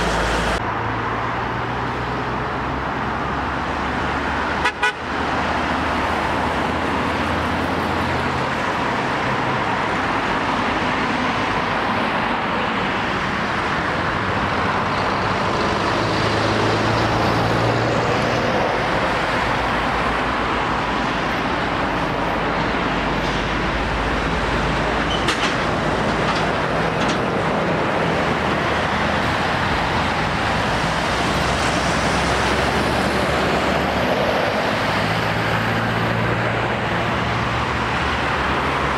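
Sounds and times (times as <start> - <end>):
cars and lorries passing: 0.0 - 38.9
heavy lorry diesel engine: 0.0 - 38.9.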